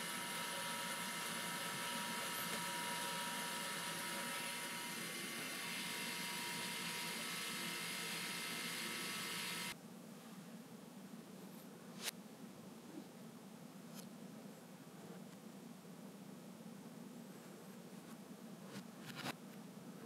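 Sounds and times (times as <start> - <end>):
electric motor gear train whirring: 0.0 - 9.8.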